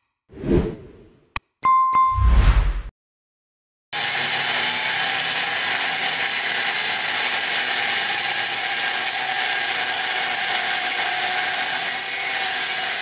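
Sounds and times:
angle grinder cutting steel: 0:04.0 - 0:13.0.

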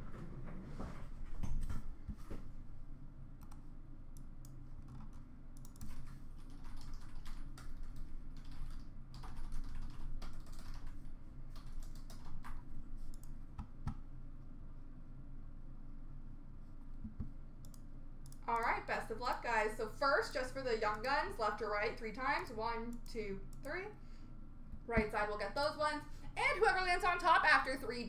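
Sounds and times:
typing on a keyboard: 0:04.9 - 0:13.3.

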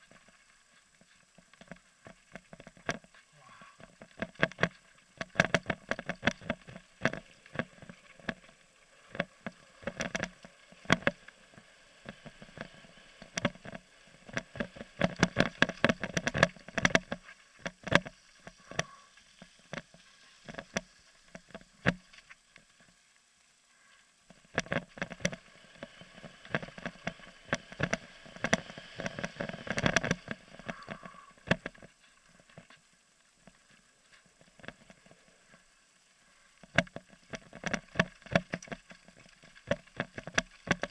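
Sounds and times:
mountain bike rattling on gravel: 0:03.9 - 0:22.1, 0:24.6 - 0:32.5, 0:36.8 - 0:40.9.

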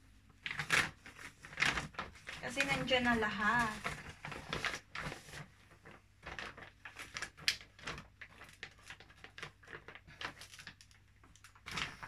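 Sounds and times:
plastic packaging rustling: 0:00.3 - 0:12.0.

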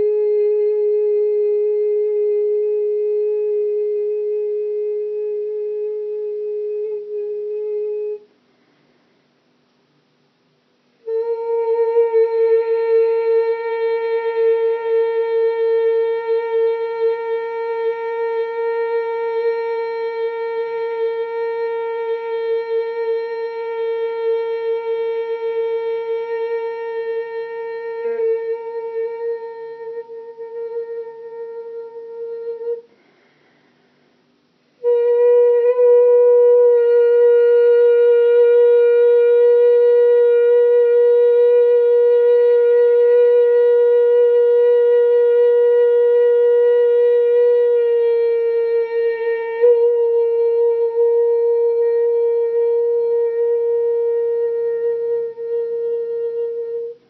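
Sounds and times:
woman singing a long high note: 0:00.0 - 0:08.3, 0:11.0 - 0:33.0, 0:34.8 - 0:57.0.

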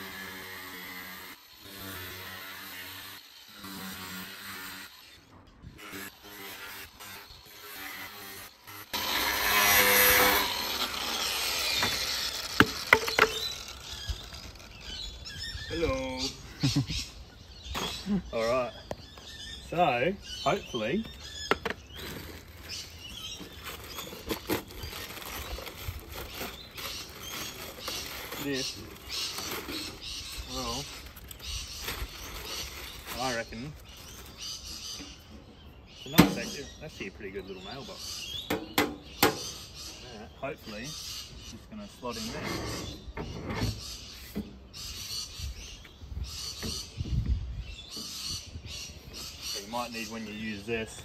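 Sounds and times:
plastic wrapping crinkling: 0:22.0 - 0:34.4.

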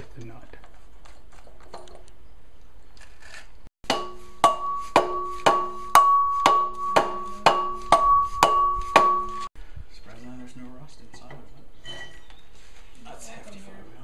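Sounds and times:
mallet beating on metal: 0:03.8 - 0:09.5
steady ringing tone: 0:03.9 - 0:09.5.

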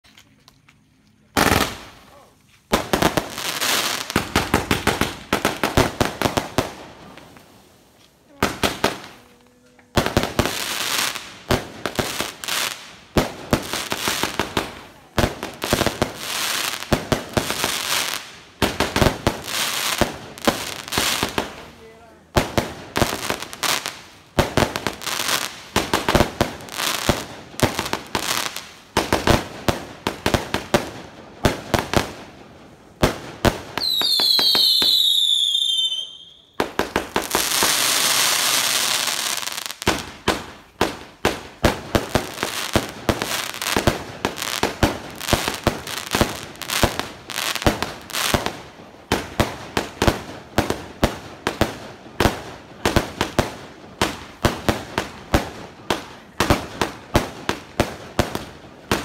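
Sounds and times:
fireworks bangs and cracks: 0:01.3 - 0:59.0
firework crackling hiss: 0:32.9 - 0:59.0
firework whistles: 0:33.8 - 0:36.6.

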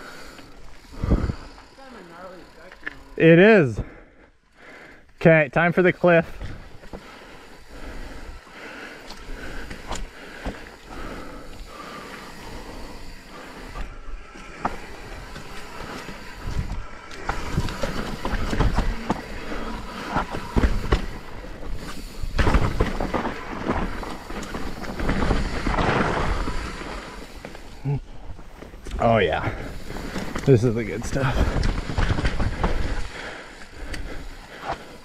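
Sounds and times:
bike rattling: 0:00.0 - 0:35.0
wind rumble on microphone: 0:01.0 - 0:01.4
tyres rolling over rock: 0:06.3 - 0:35.0.

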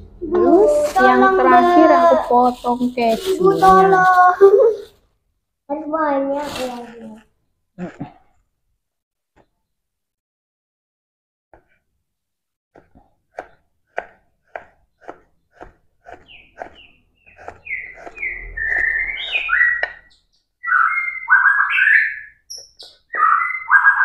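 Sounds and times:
knife slicing cheese on board: 0:12.8 - 0:18.2
bird chirping falling calls: 0:16.2 - 0:24.0.

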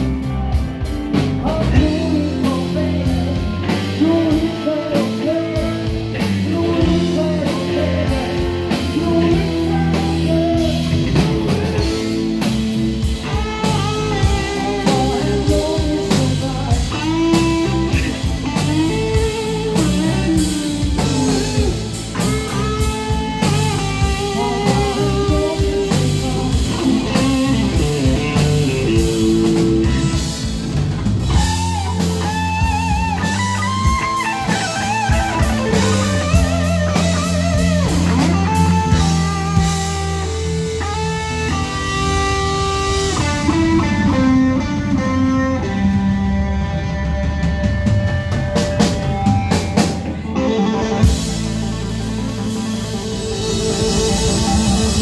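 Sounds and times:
bending lead guitar line: 0:00.0 - 0:55.0
blues-rock band playing: 0:00.0 - 0:55.0.

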